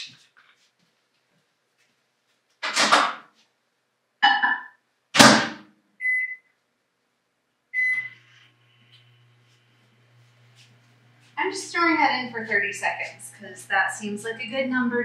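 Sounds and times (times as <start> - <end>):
keypad beeps: 6.0 - 6.4, 7.8 - 8.1
microwave humming: 7.8 - 15.0.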